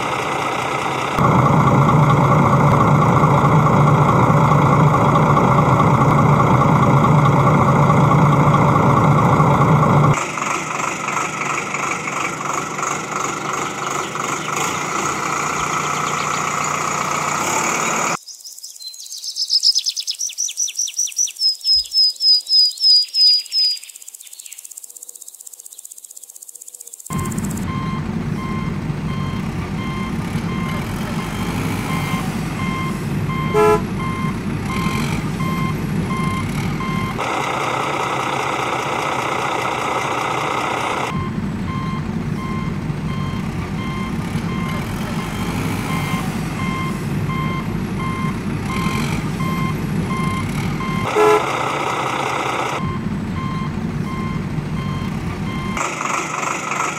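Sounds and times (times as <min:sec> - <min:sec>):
harsh high engine noise: 0:00.0 - 0:18.2, 0:27.1 - 0:56.9
truck engine rumbling: 0:00.0 - 0:18.2, 0:27.1 - 0:56.9
reversing alarm beeping: 0:27.1 - 0:37.2, 0:41.0 - 0:51.5, 0:52.7 - 0:55.8.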